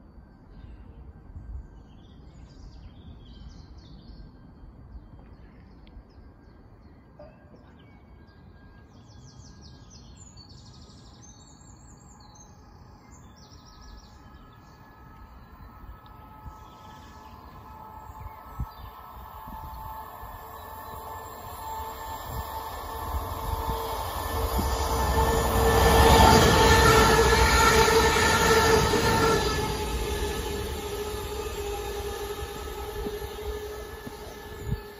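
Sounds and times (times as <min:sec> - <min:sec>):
faint distant train hum: 0:00.0 - 0:34.9
low outdoor rumble: 0:20.9 - 0:34.9.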